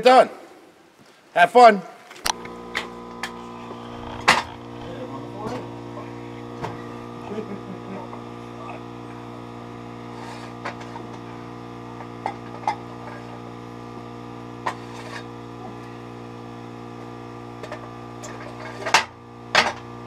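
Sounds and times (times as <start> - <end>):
steady electrical hum: 2.3 - 20.0.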